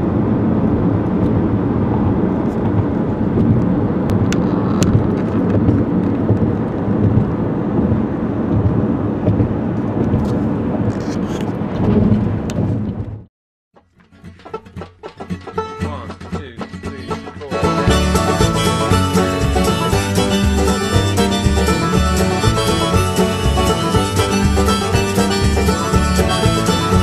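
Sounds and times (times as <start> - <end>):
deep steady noise: 14.4 - 27.0.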